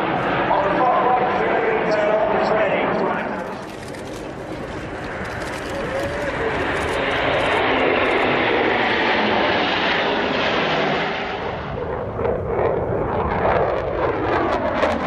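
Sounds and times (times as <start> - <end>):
jet engine roar: 0.0 - 15.0
crackly rumble: 2.9 - 8.8.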